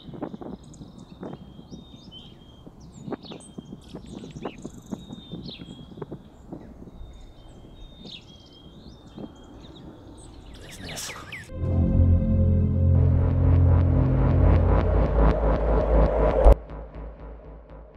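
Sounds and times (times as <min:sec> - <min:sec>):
songbirds whistling: 0:00.0 - 0:11.5.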